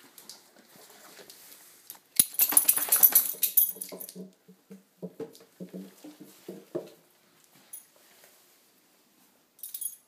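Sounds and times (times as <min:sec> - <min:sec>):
cardboard box rattling on tiles: 0:02.4 - 0:04.4
soft knocks: 0:03.9 - 0:07.0.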